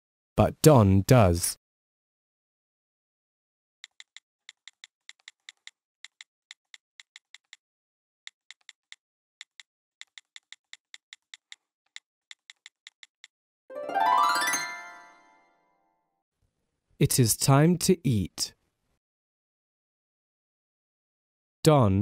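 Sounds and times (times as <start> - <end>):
keyboard typing: 3.8 - 7.6, 8.3 - 13.4.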